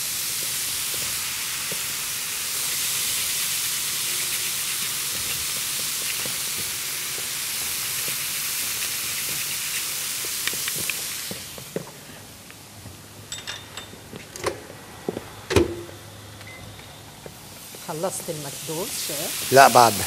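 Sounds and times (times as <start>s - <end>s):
chicken sizzling in a pan: 0.0s - 11.8s, 17.6s - 20.0s.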